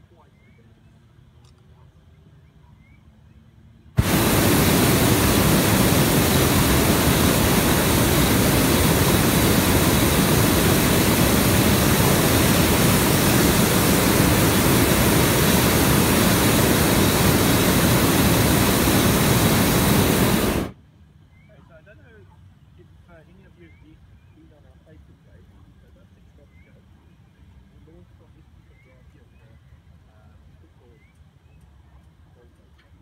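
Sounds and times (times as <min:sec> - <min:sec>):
propane burner blast: 0:04.0 - 0:20.8.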